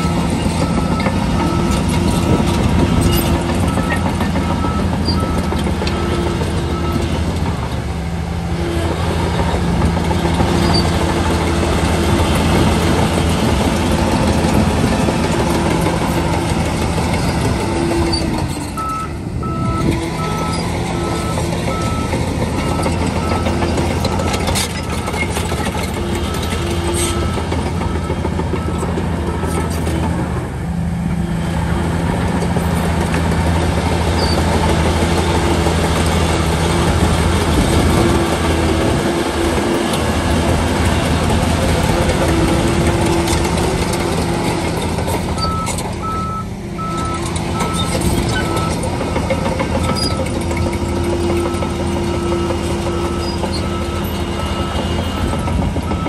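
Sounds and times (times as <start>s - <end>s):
reversing alarm beeping: 0.0s - 7.2s, 18.0s - 29.6s, 45.4s - 56.0s
bulldozer diesel engine running: 0.0s - 56.0s.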